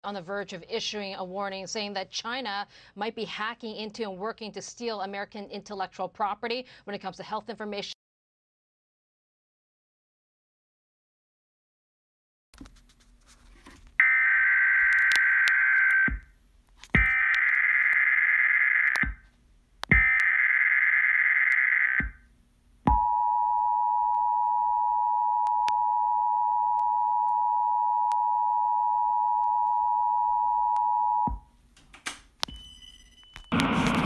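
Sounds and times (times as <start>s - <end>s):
harsh digital screeches: 32.9s - 34.0s.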